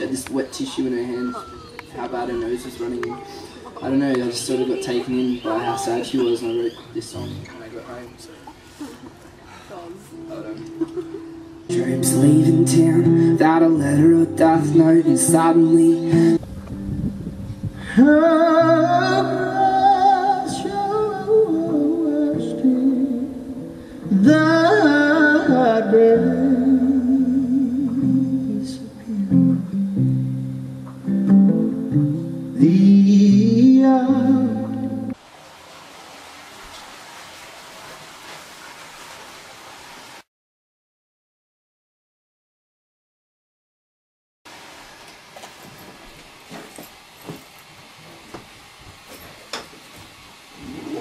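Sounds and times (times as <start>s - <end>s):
plucked acoustic guitar: 10.1s - 17.2s, 17.9s - 35.2s
man singing: 11.7s - 16.4s, 17.8s - 29.8s, 32.5s - 35.2s
steady hiss: 44.5s - 51.0s.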